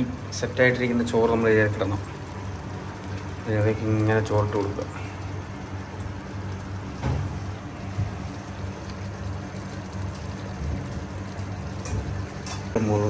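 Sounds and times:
low kitchen hum: 0.0s - 13.0s.

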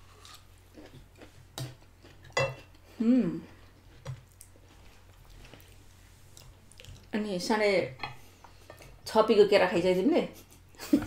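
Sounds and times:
person humming mm: 3.0s - 3.5s.

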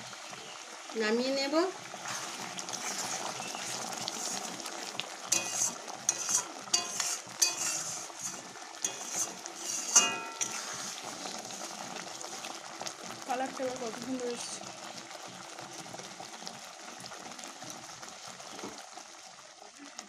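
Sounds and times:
pickle bubbling and sizzling: 0.0s - 20.0s
metal spatula scraping a wok: 2.0s - 4.6s, 5.3s - 11.4s
ringing clink on a pan: 10.0s - 10.5s.

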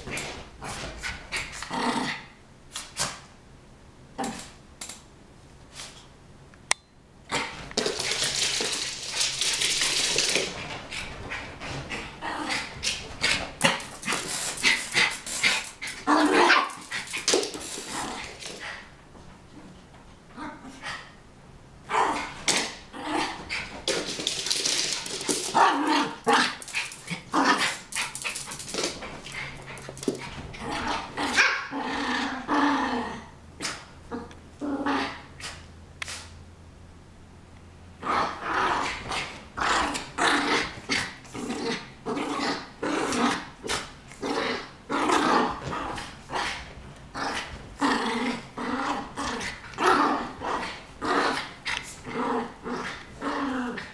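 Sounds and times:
dogs growling: 9.9s - 18.8s, 21.9s - 33.3s, 38.0s - 53.9s
small dogs barking: 16.1s - 16.9s.

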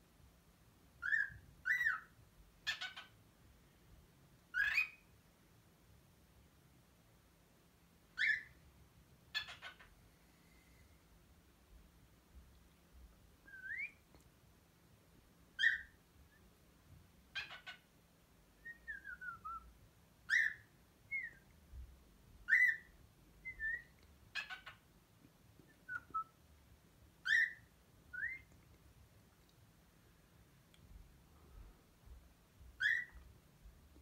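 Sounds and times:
cockatiel whistling and chirping: 1.0s - 2.1s, 2.7s - 3.1s, 4.5s - 5.1s, 8.2s - 8.6s, 9.4s - 9.8s, 13.5s - 14.0s, 15.6s - 16.0s, 17.4s - 17.8s, 18.6s - 19.7s, 20.3s - 21.4s, 22.4s - 24.8s, 25.7s - 26.3s, 27.2s - 28.5s, 32.8s - 33.2s.

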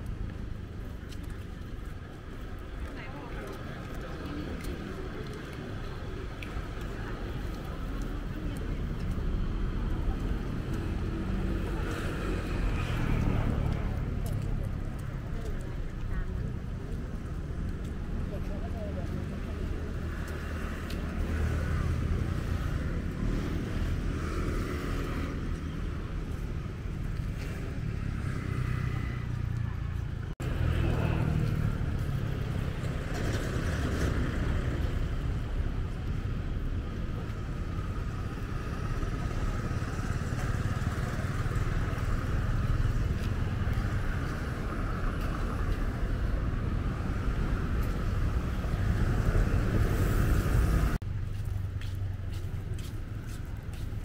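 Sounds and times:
motorbikes passing: 0.0s - 54.0s
road traffic rumble: 0.0s - 54.0s.

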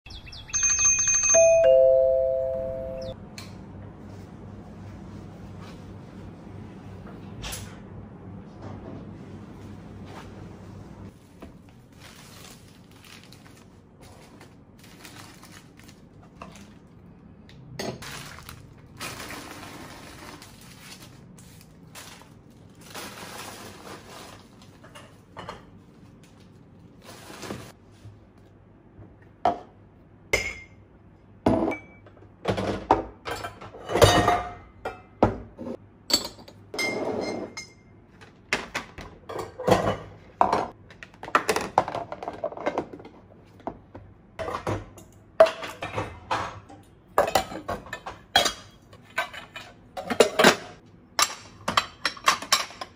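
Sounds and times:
foil wrappers crinkling: 11.2s - 16.9s, 18.0s - 24.8s
dishes clinking and knocking: 31.4s - 37.9s, 38.6s - 43.2s, 44.4s - 52.9s.

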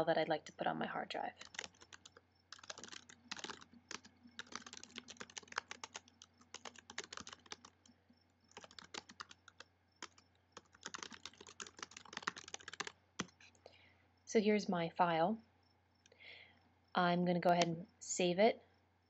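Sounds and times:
faint steady hum: 0.0s - 19.0s
keyboard typing clicks: 1.4s - 7.9s, 8.5s - 13.5s.

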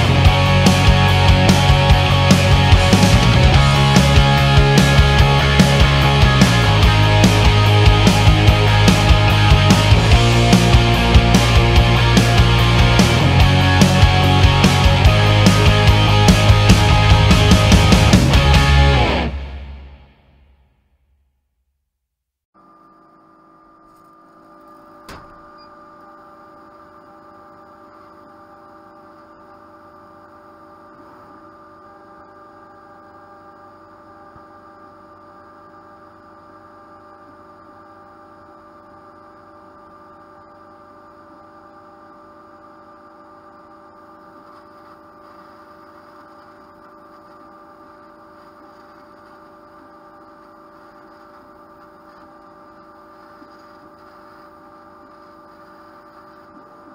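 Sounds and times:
steady electrical hum: 22.6s - 56.9s.

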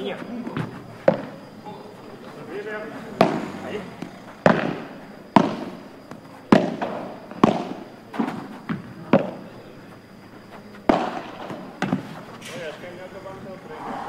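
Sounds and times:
ball hit with rackets: 0.4s - 1.4s, 3.1s - 9.5s, 10.8s - 12.7s
ball knocks: 3.0s - 9.6s.

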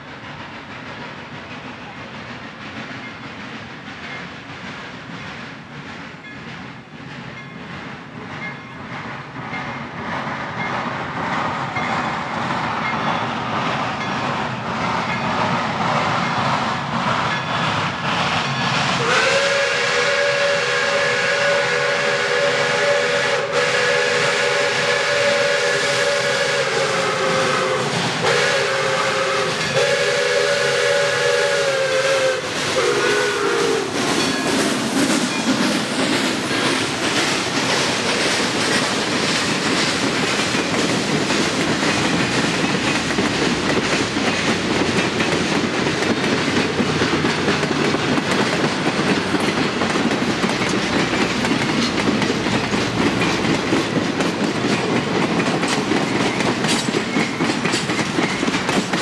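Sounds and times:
steam locomotive exhaust beats: 0.0s - 59.0s
steam whistle blasts: 19.0s - 34.0s.

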